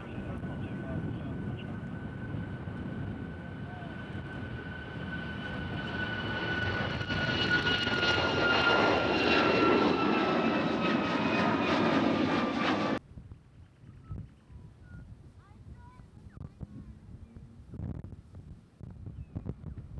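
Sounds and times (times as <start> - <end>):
jet engines roaring and whining: 0.0 - 13.0.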